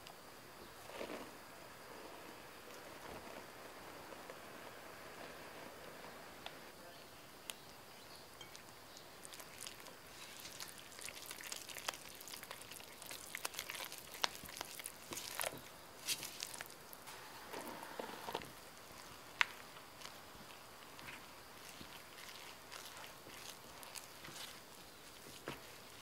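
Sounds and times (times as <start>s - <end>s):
sticky dough squelching: 8.4s - 17.1s, 18.2s - 26.0s.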